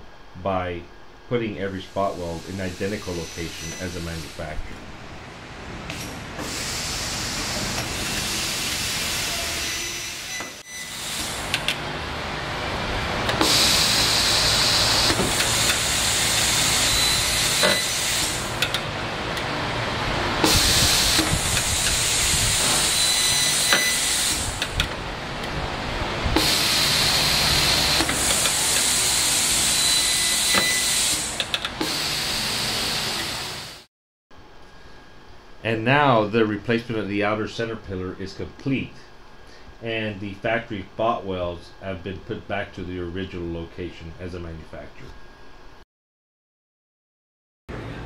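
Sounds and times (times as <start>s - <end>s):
spot welder hissing: 1.7s - 5.2s, 5.8s - 11.8s, 13.3s - 18.9s, 20.4s - 25.0s, 26.4s - 33.9s
spot welder clicks: 11.2s - 11.8s, 14.8s - 19.5s, 20.4s - 25.6s, 27.8s - 29.0s, 30.5s - 32.0s.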